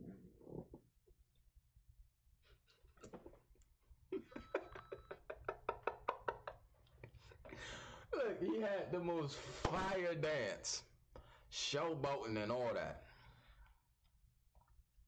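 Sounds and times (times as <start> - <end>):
man laughing hard: 4.2 - 6.6.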